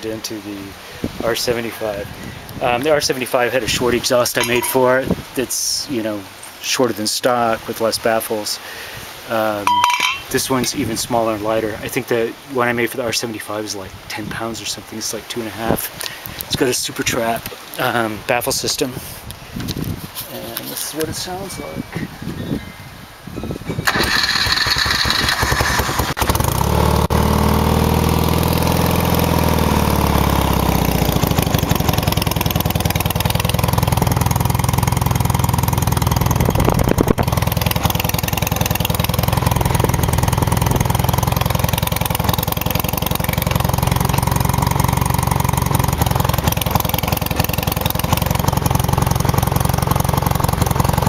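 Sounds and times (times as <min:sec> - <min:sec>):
motorcycle engine starting and idling: 0:04.3 - 0:05.0, 0:23.8 - 0:51.0.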